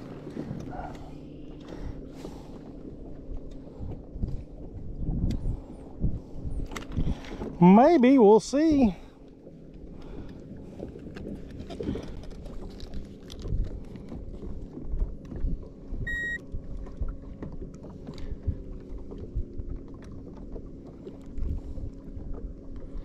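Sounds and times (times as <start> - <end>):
electric trolling motor humming: 0.0 - 7.6
water slapping against hull: 0.0 - 23.0
short high beep from remote: 16.1 - 16.4.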